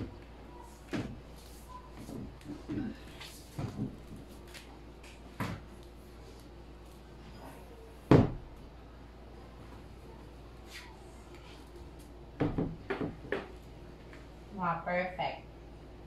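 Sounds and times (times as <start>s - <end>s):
furniture thump on tile floor: 5.4s - 5.6s, 8.1s - 8.5s, 12.4s - 13.5s.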